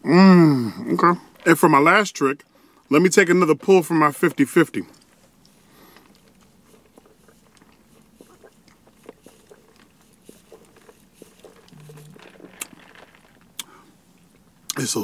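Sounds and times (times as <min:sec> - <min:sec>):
closed-mouth hum: 0:04.8 - 0:14.8
swallowing and mouth clicks: 0:04.9 - 0:14.8
person sipping through a straw: 0:05.0 - 0:14.3.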